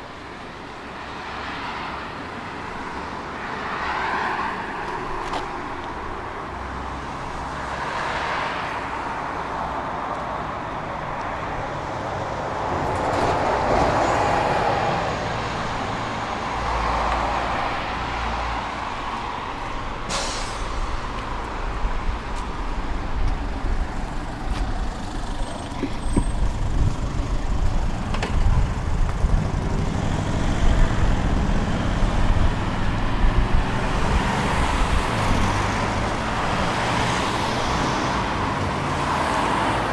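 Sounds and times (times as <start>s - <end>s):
tram wheels rumbling on rails: 12.6s - 15.9s.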